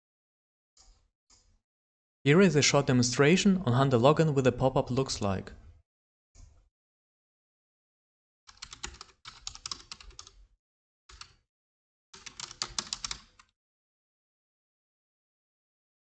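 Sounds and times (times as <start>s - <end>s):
typing on computer keyboard: 8.5s - 10.4s, 11.1s - 11.4s, 12.2s - 13.5s.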